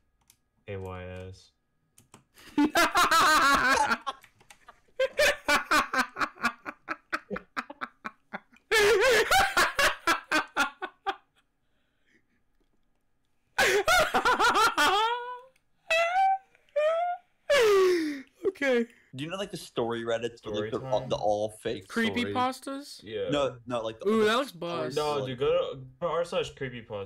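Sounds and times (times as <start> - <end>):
men laughing loudly: 2.4 - 11.4, 13.6 - 15.5.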